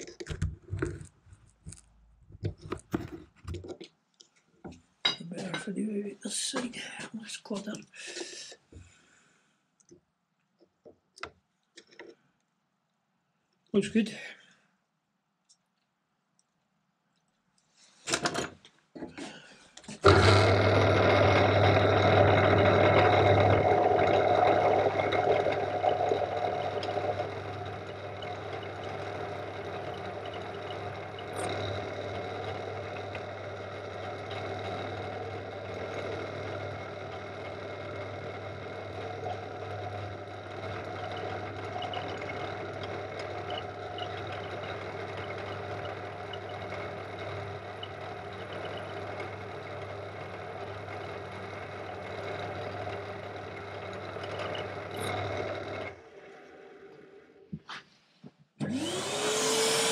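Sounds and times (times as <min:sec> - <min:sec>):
drill motor hum with cutting: 0:20.0 - 0:57.0, 0:58.6 - 0:59.9.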